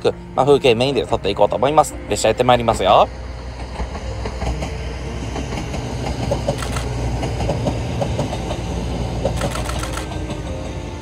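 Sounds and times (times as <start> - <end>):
diesel engine rumble: 0.0 - 11.0
train wheels clacking on rails: 2.4 - 11.0.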